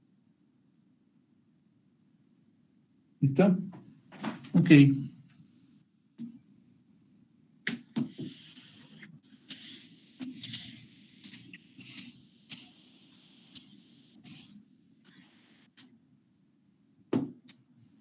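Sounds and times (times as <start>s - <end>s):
eraser wiping a whiteboard: 7.9s - 15.7s.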